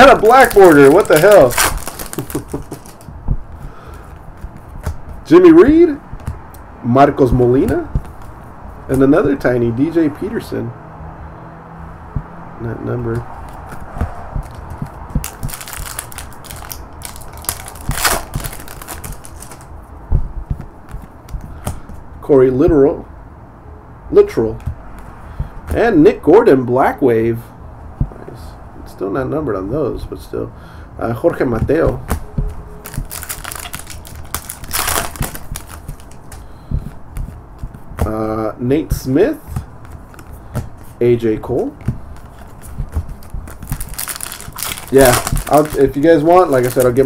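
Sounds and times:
foil wrapper crinkling: 0.0s - 3.1s, 14.4s - 19.7s, 32.8s - 36.5s, 42.2s - 47.0s
cards clicking and rustling: 0.0s - 6.7s, 13.1s - 19.8s, 20.5s - 22.0s, 31.6s - 38.3s, 39.6s - 41.0s, 41.6s - 47.0s.

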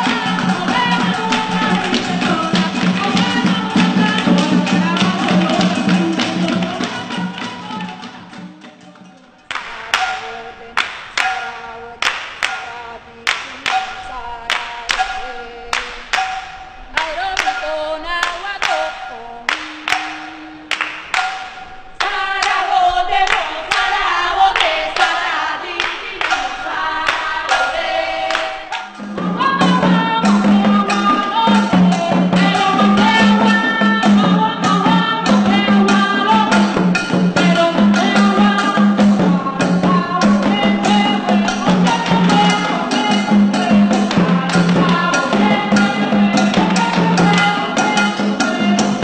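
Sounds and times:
woman singing a chant: 0.0s - 21.1s, 22.0s - 49.0s
hand claps: 9.5s - 10.2s, 10.8s - 12.7s, 13.3s - 17.6s, 18.2s - 22.6s.

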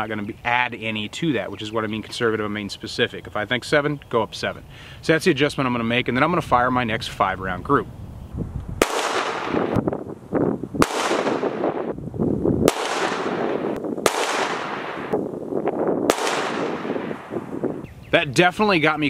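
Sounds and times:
handgun shots with echo: 8.8s - 9.8s, 10.8s - 11.7s, 12.7s - 15.2s, 16.1s - 17.2s.

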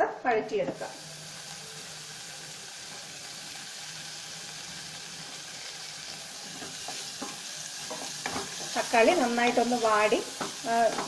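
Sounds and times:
food sizzling in a pan: 0.3s - 11.0s
wooden spatula stirring pan: 6.1s - 11.0s.

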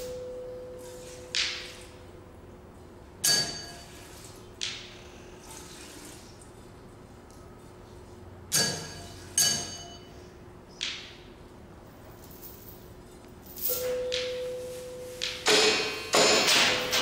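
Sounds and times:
steady ringing tone: 0.0s - 1.1s, 8.8s - 10.3s, 13.6s - 17.0s.

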